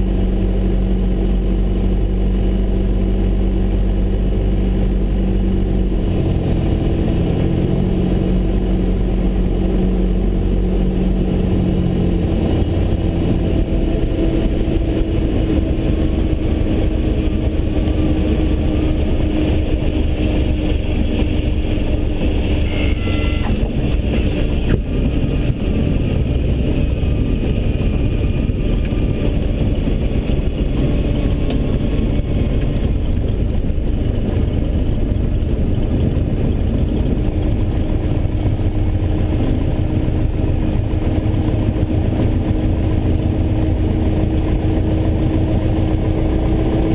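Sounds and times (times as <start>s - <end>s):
airplane engine and propeller: 0.0s - 46.9s
steady wind noise: 0.0s - 46.9s
wheels bumping on runway: 11.5s - 46.9s.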